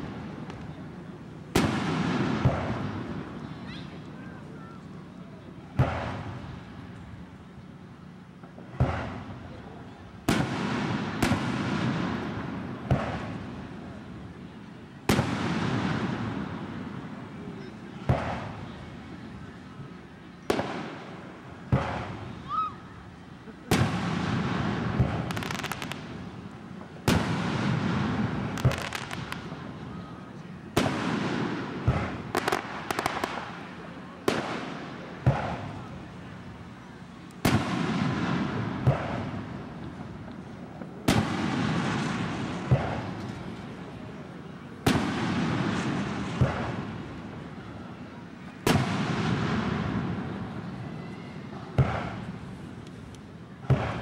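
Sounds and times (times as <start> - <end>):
firework crackles: 0.0 - 19.4, 20.1 - 51.0, 51.7 - 54.0
firework booms with echo: 1.5 - 3.4, 5.7 - 6.6, 8.7 - 9.4, 10.2 - 13.8, 15.1 - 17.2, 18.0 - 18.7, 20.5 - 22.3, 23.6 - 29.8, 30.7 - 35.9, 37.4 - 43.7, 44.8 - 47.2, 48.6 - 50.8, 51.8 - 52.6, 53.6 - 54.0.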